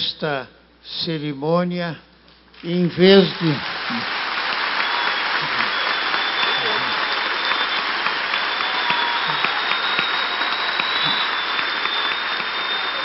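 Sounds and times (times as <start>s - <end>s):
audience applauding: 2.9s - 13.0s.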